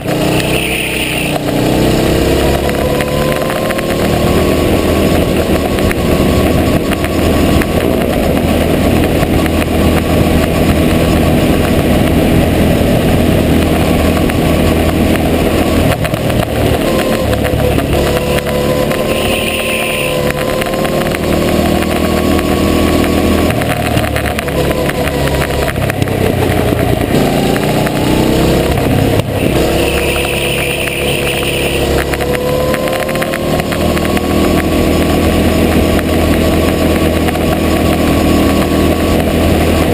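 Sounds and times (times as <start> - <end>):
go-kart engine revving: 0.0 - 39.9
short high squeal: 0.4 - 1.4, 18.6 - 20.2, 29.4 - 31.9.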